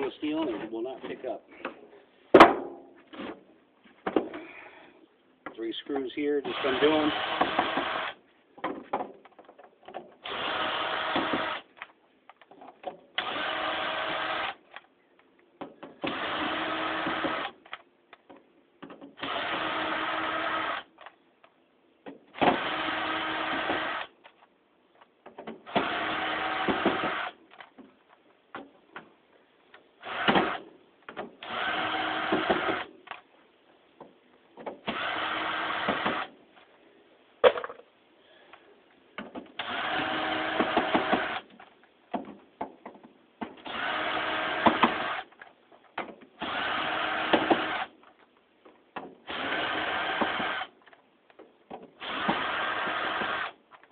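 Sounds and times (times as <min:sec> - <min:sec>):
power screwdriver whirring: 0:39.6 - 0:41.4, 0:52.0 - 0:53.6.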